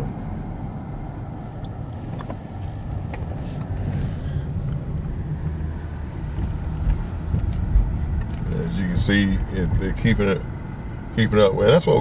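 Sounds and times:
car engine and road rumble: 0.0s - 12.0s
brief hiss: 3.2s - 4.4s.

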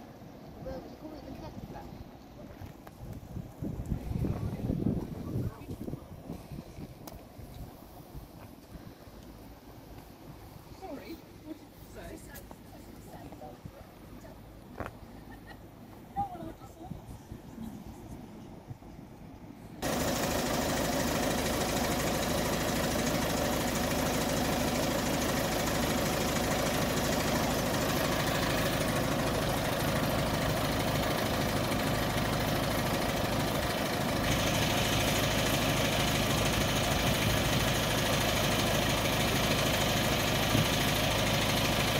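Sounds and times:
diesel locomotive idling: 18.0s - 41.9s.

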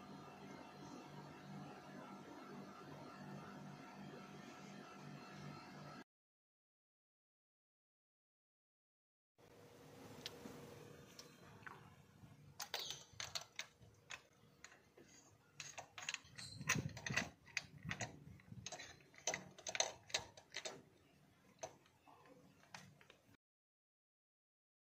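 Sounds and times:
metal socket clicking: 15.6s - 20.8s.

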